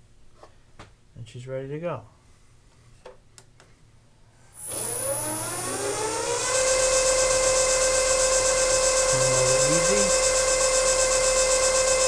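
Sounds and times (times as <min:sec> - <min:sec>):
milling machine spindle motor whine: 0:04.6 - 0:12.0.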